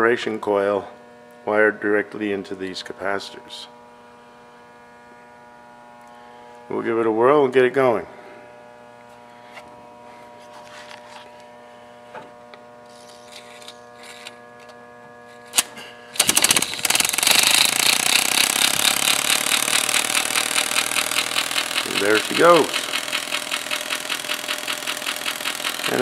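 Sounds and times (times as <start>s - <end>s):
motor rapid chatter: 12.9s - 14.7s, 15.5s - 26.0s.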